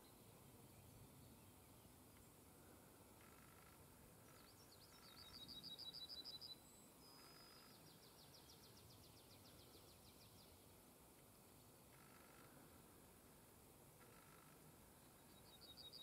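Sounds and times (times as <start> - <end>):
faint hiss: 0.0 - 16.0
small songbirds singing: 3.2 - 10.8, 14.0 - 16.0.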